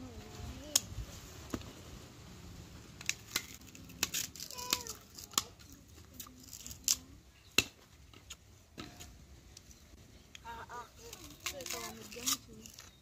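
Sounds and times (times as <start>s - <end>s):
sugarcane rind cracking: 3.0s - 8.4s, 11.0s - 13.0s.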